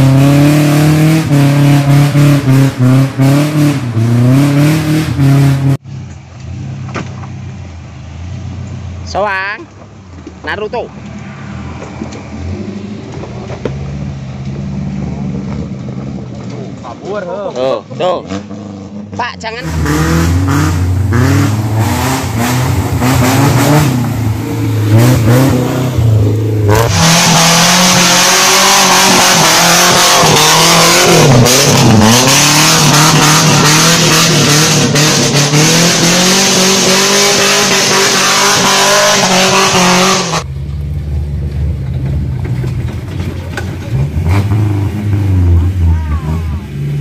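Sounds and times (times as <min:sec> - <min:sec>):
off-road engine revving hard: 0:00.0 - 0:05.8, 0:17.6 - 0:40.5, 0:43.7 - 0:47.0.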